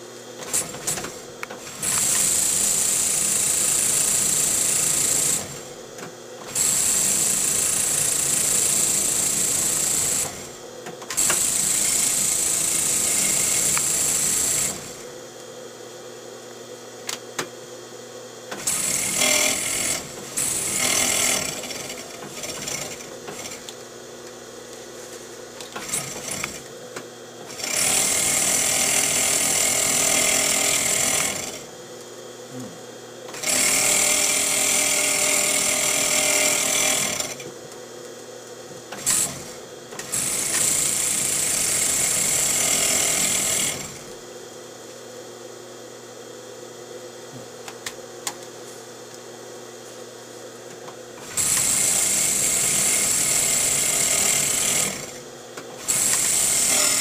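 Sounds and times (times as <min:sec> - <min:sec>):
leather skiving machine motor hum: 0:00.4 - 0:15.5.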